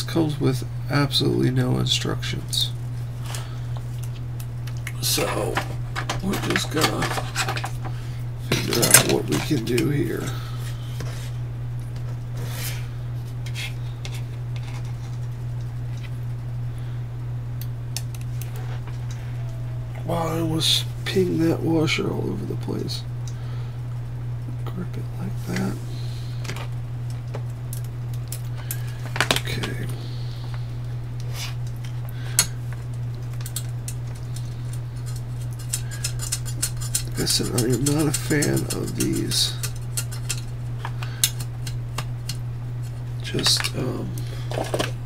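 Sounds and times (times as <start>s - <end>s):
steady low hum: 0.0s - 45.0s
faint clicks of metal parts: 31.6s - 45.0s.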